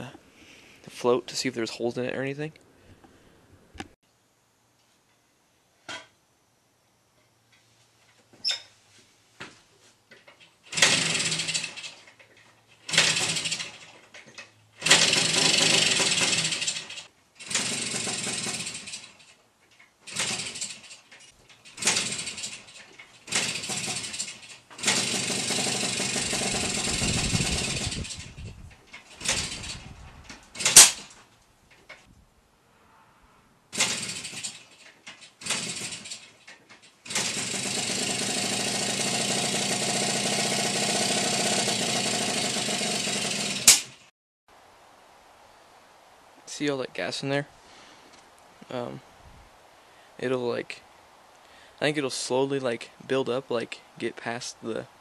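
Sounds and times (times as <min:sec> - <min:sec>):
two-stroke motorcycle engine starting: 0:10.6 - 0:12.2, 0:12.8 - 0:19.3, 0:20.0 - 0:28.4, 0:29.0 - 0:29.9, 0:30.5 - 0:31.2, 0:33.7 - 0:44.1.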